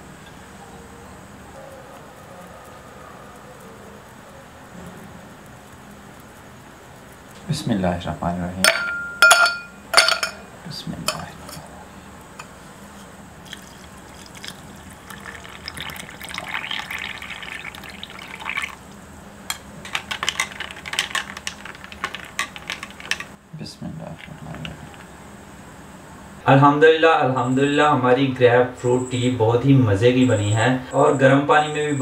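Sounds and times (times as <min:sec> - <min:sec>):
glass clinks: 0:08.7 - 0:10.4
spoon stirring ice cubes: 0:13.4 - 0:18.8, 0:19.8 - 0:23.4
water poured into glass: 0:13.4 - 0:18.8.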